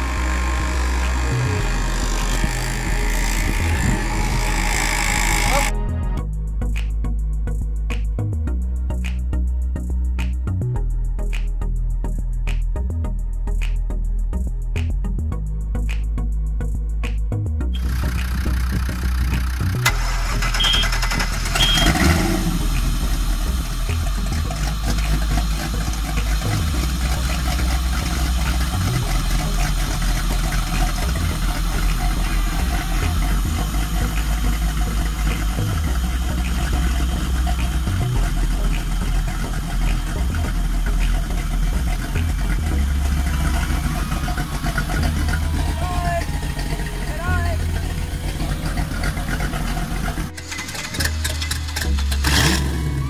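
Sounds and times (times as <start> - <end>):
marine engine running: 0.0 - 5.9, 17.8 - 53.0.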